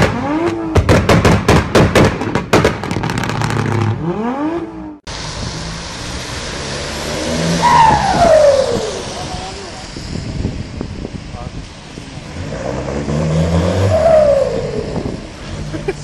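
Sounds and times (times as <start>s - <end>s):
engine revs: 0.0s - 1.5s, 2.8s - 10.0s, 12.1s - 16.0s
rapid sharp bangs and pops: 0.0s - 3.9s
car approaching: 0.0s - 16.0s
tyre hiss on wet road: 5.1s - 10.6s.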